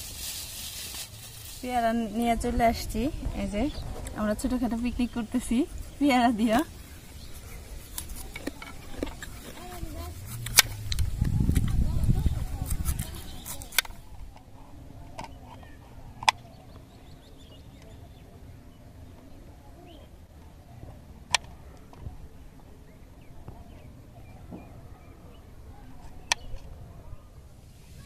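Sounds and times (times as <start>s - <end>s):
faint open-air background: 0.0s - 28.0s
knife slicing fruit: 6.7s - 14.1s
sharp blade clicks: 10.3s - 11.8s.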